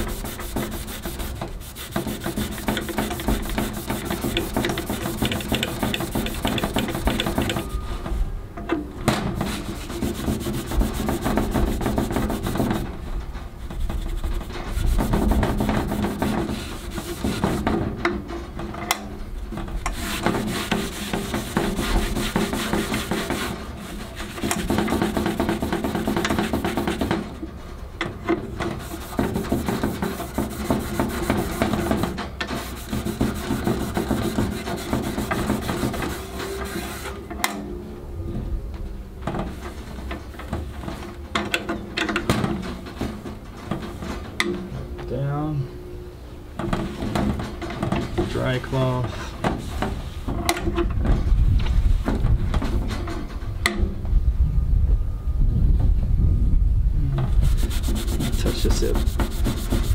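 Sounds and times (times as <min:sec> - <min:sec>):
abrasive pad scrubbing steel: 0:00.0 - 0:07.8, 0:09.4 - 0:13.0, 0:13.7 - 0:17.8, 0:19.8 - 0:27.3, 0:28.6 - 0:37.2, 0:57.3 - 0:59.9.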